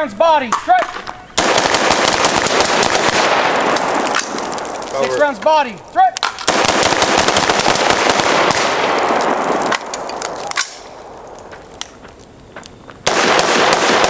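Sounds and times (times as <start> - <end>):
rifles firing rapid shots: 1.3 - 4.4, 6.2 - 11.2, 13.0 - 14.0.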